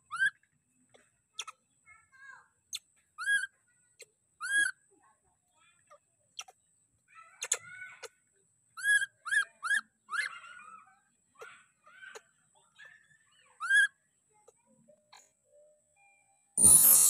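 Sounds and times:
baby monkey squeaky calls: 0.0s - 0.4s, 1.4s - 1.6s, 2.7s - 3.5s, 4.4s - 4.8s, 6.4s - 6.6s, 7.4s - 8.1s, 8.8s - 10.8s, 13.6s - 14.0s.

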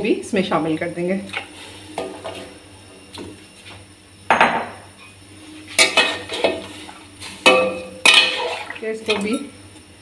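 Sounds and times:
metal spoon clanking on pot: 7.4s - 9.5s.

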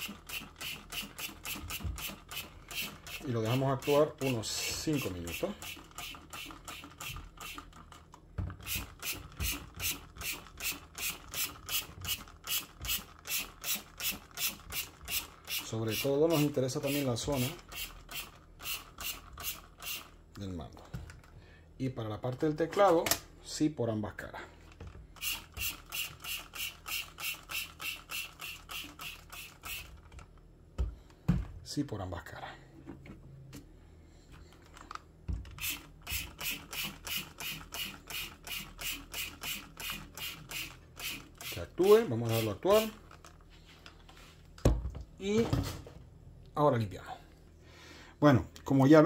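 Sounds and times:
spray bottle squirting: 25.2s - 30.0s, 35.6s - 41.6s.

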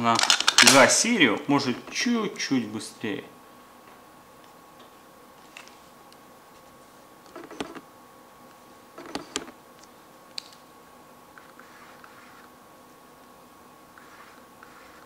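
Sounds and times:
lens autofocus motor whirring: 11.3s - 12.6s, 13.9s - 15.0s.

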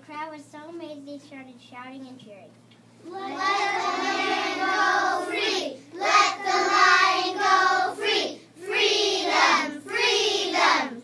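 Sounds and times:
children chanting: 3.0s - 11.0s.

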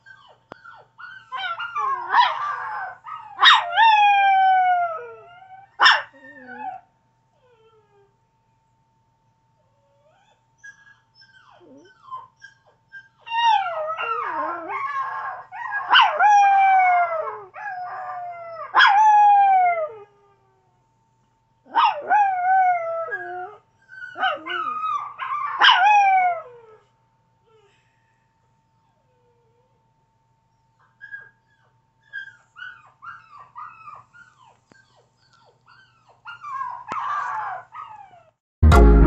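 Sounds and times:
dog whimpering: 0.0s - 6.8s, 9.8s - 18.7s, 22.0s - 26.8s, 30.8s - 38.3s
dog howling: 1.4s - 6.8s, 13.3s - 20.2s, 21.8s - 26.8s.

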